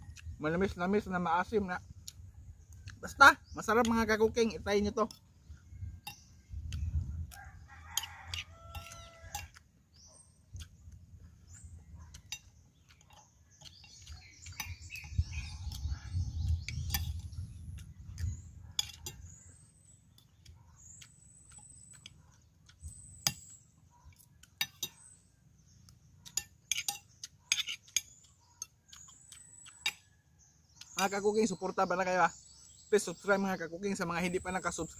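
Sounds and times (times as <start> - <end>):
rooster crowing: 7.3 - 9.6
cutlery clinking on plates: 8.0 - 9.6, 26.3 - 28.1.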